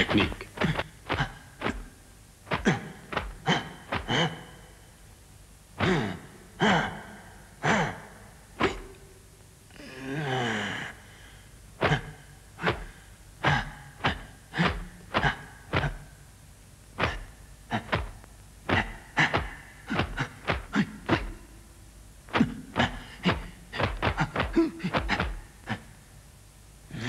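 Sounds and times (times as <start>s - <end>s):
swishing whooshes of hand strikes: 2.5s - 4.3s, 17.0s - 21.4s, 22.3s - 25.4s.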